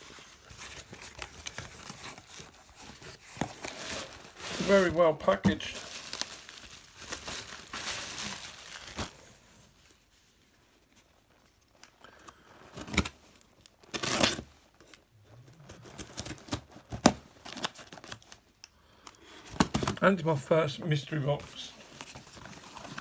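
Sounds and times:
paper and tape tearing: 0:13.8 - 0:14.5.

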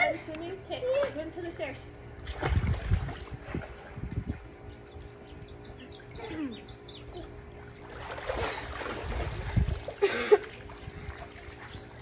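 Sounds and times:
pool water splashing: 0:02.2 - 0:04.0, 0:07.4 - 0:12.0.

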